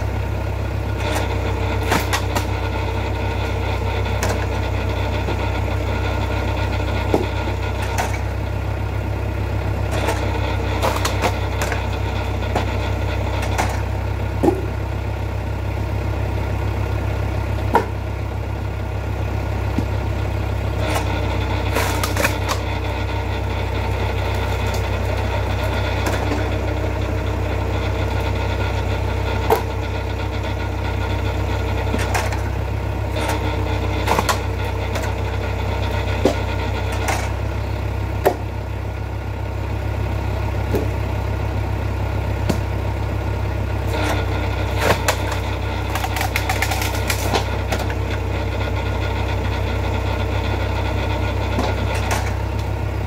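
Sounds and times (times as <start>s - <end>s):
log splitter engine running: 0.0s - 53.0s
logs knocking and cracking: 0.9s - 8.5s, 9.8s - 14.9s, 17.5s - 18.3s, 19.6s - 38.6s, 40.5s - 41.1s, 42.3s - 42.9s, 43.8s - 48.2s, 51.2s - 52.8s.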